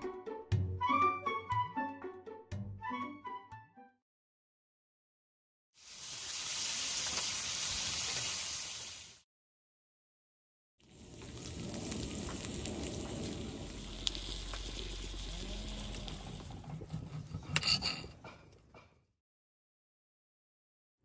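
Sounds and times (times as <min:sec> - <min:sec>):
meat sizzling in grill pan: 0:05.8 - 0:09.2, 0:10.8 - 0:16.4.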